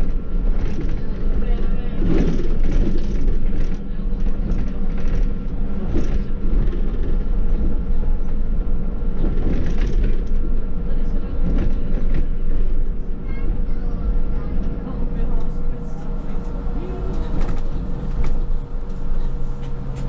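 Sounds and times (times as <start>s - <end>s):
trolleybus low rumble: 0.0s - 20.0s.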